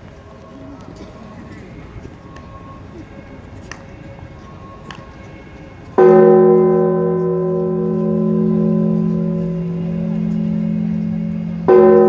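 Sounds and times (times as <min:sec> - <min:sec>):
low crowd murmur: 0:00.0 - 0:12.0
deep church bell ringing: 0:06.0 - 0:12.0.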